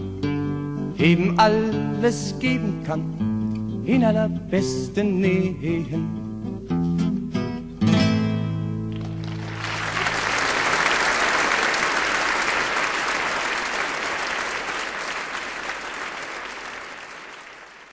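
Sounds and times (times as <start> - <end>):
audience applause: 9.0 - 17.9.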